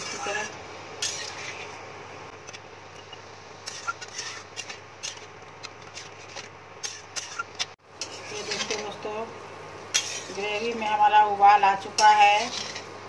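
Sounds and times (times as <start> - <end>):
spatula scraping metal pan: 0.0 - 1.8, 3.6 - 9.2, 9.9 - 10.9, 12.0 - 13.0.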